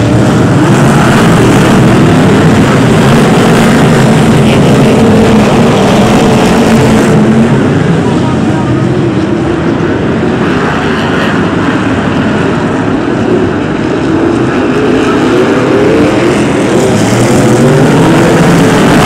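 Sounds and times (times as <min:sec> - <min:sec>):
race car engines revving: 0:00.0 - 0:19.0.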